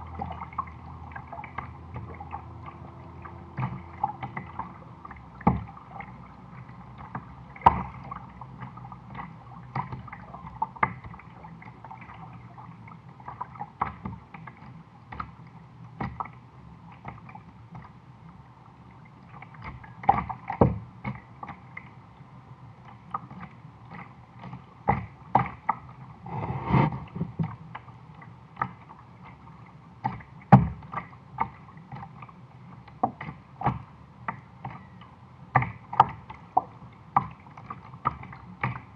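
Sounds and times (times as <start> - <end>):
paddle knocks and splashes: 0.0 - 6.1, 7.0 - 12.4, 13.2 - 15.4, 16.0 - 16.4, 19.4 - 21.9, 23.2 - 27.9, 30.0 - 32.3, 32.9 - 34.9, 35.5 - 38.9
water splashing against hull: 0.0 - 38.9.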